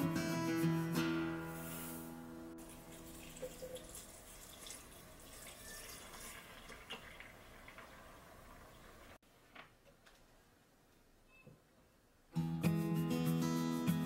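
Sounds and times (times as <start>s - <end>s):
milk pouring and splashing: 2.6s - 9.2s.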